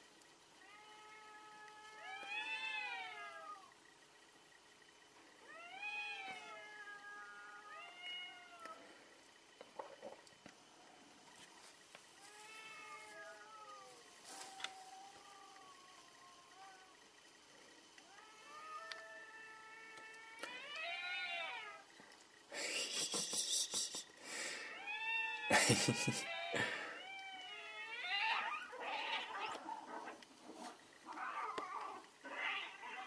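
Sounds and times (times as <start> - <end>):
cats yowling: 0.6 - 3.8, 5.4 - 9.0, 12.2 - 17.1, 18.0 - 21.9, 23.2 - 30.2, 31.0 - 33.0.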